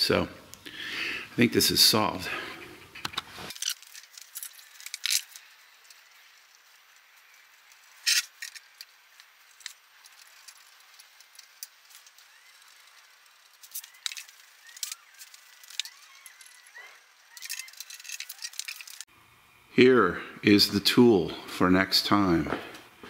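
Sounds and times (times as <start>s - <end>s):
small ticks: 3.0s - 19.0s.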